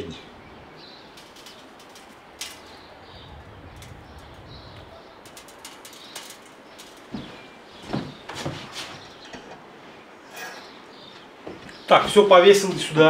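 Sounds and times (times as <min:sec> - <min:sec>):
small birds chirping: 0:00.0 - 0:13.0
metal hooks clicking on wire: 0:01.1 - 0:02.9, 0:05.2 - 0:07.1.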